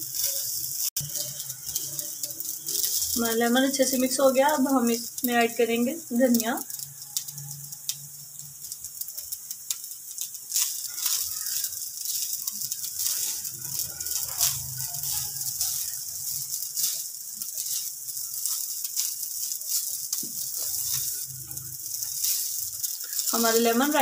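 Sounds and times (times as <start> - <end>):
spatula scraping rice in pan: 0.0 - 3.2, 10.5 - 24.0.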